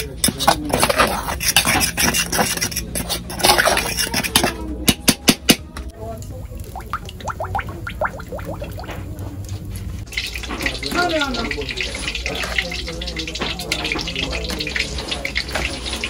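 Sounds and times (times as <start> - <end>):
fork scraping and clinking in pot: 0.0 - 4.7.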